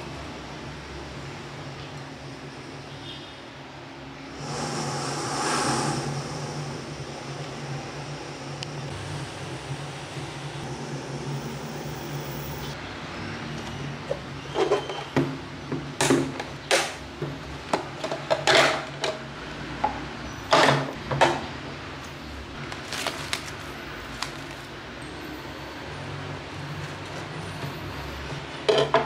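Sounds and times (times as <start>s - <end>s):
steady low hum: 4.2s - 12.8s
plastic packaging clicking and crackling: 22.6s - 24.7s.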